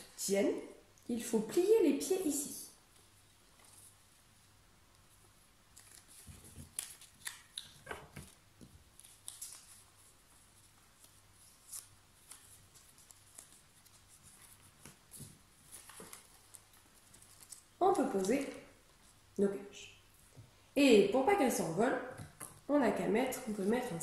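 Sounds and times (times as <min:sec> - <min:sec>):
paper crinkling being folded: 0:02.8 - 0:19.2.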